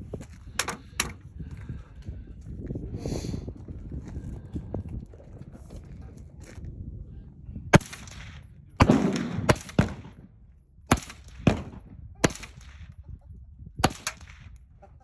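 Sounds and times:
suppressed rifle shots: 0:07.8 - 0:10.2, 0:10.9 - 0:12.8.

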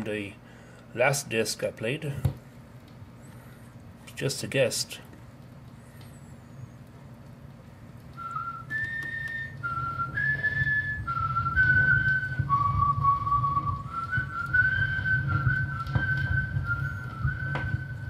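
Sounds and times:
whistled melody on record: 0:08.0 - 0:18.0.

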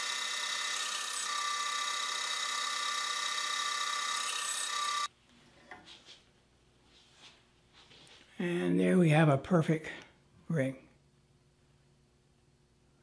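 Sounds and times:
band saw cutting wood: 0:00.0 - 0:05.1.

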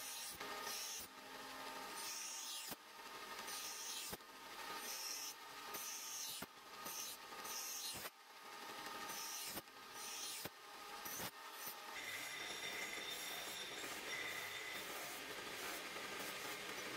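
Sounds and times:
knife grinding on grinding wheel: 0:11.0 - 0:16.9.

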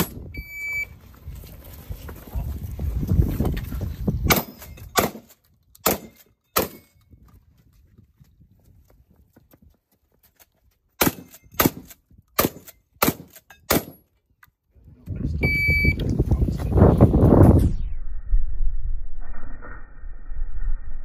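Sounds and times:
wind buffeting microphone: 0:00.0 - 0:05.0, 0:07.0 - 0:09.7, 0:14.9 - 0:18.6
electronic timer beep: 0:00.3 - 0:00.9, 0:15.4 - 0:16.0
gunshots: 0:04.3 - 0:06.8, 0:11.0 - 0:14.0.

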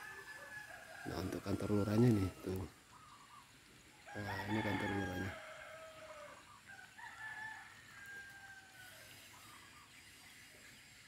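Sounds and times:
rooster crowing: 0:00.0 - 0:01.7, 0:04.0 - 0:09.3.

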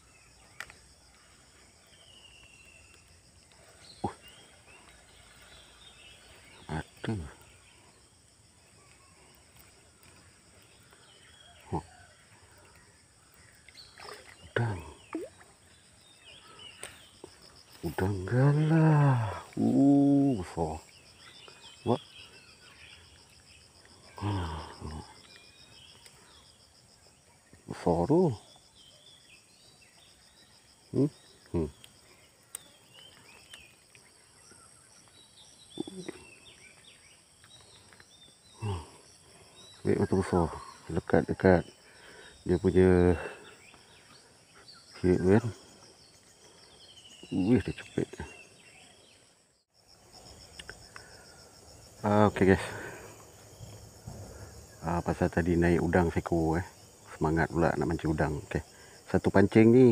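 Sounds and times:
birds chirping: 0:00.0 - 0:59.9
high insect drone: 0:00.0 - 0:59.9
prawn splashing in water: 0:13.8 - 0:15.5.

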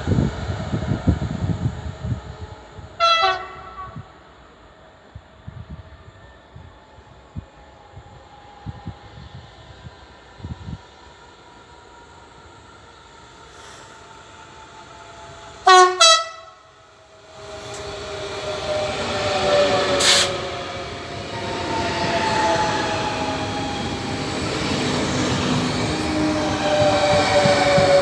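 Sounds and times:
train passing with falling whine: 0:00.0 - 0:28.0
train horn blasts: 0:03.0 - 0:04.2, 0:15.6 - 0:16.8, 0:18.7 - 0:20.5
sharp hiss: 0:13.4 - 0:14.2, 0:20.0 - 0:20.4.

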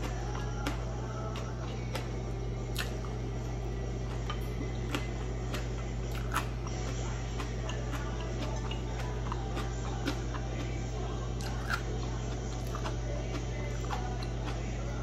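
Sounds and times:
soft chewing: 0:00.0 - 0:15.0
steady low hum: 0:00.0 - 0:15.0.

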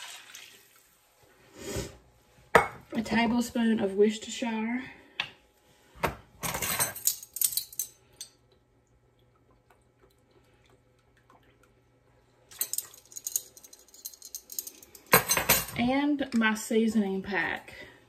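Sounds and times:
utensils clattering: 0:06.4 - 0:08.0, 0:12.5 - 0:15.8.

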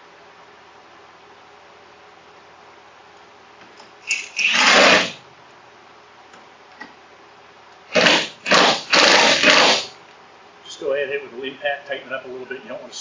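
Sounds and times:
impact wrench hammering: 0:07.9 - 0:09.9.

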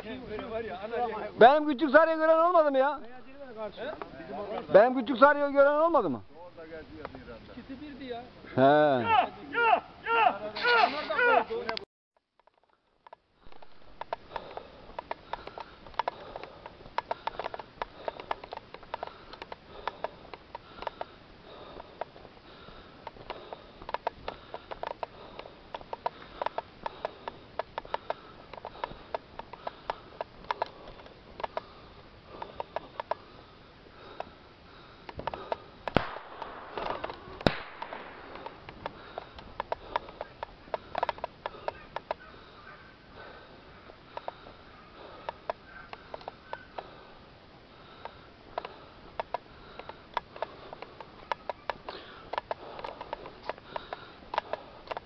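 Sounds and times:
footsteps crunching on gravel: 0:13.4 - 0:33.2.

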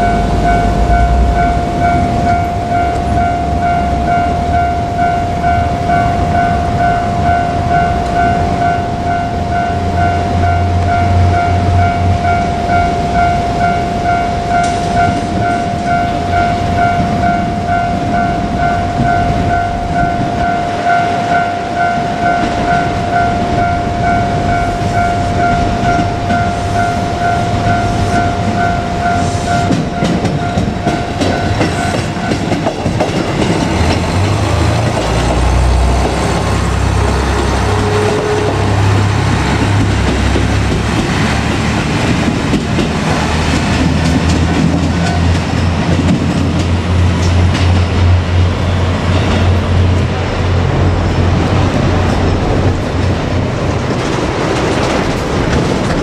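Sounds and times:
level crossing bell ringing: 0:00.0 - 0:32.7
diesel railcar rumbling past: 0:00.0 - 0:56.0.

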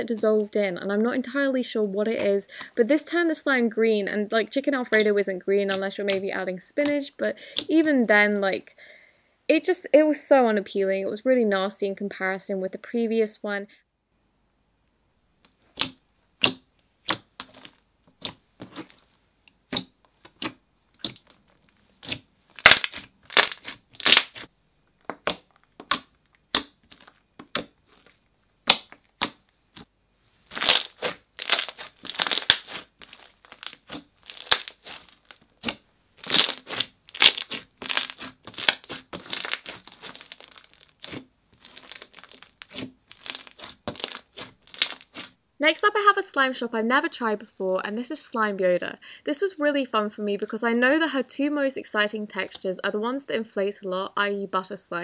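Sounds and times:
hands squeezing slime: 0:15.7 - 0:19.1, 0:19.7 - 0:24.5, 0:30.5 - 0:45.4.

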